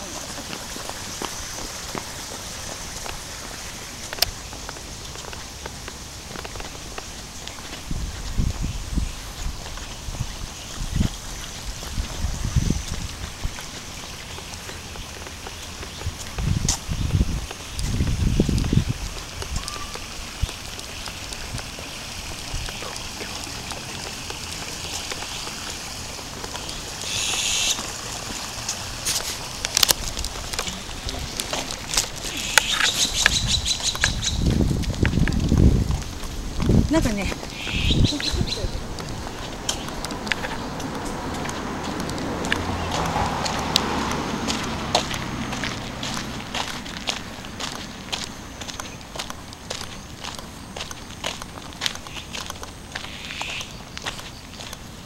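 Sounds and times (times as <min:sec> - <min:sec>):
footsteps on stone path: 0:00.0 - 0:55.0
light rain pattering: 0:00.0 - 0:55.0
stream trickling: 0:00.0 - 0:55.0
high hiss: 0:26.9 - 0:29.5.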